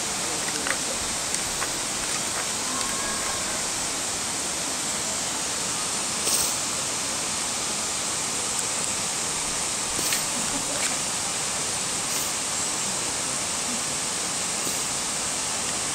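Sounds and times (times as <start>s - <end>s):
steady rushing noise: 0.0s - 15.9s.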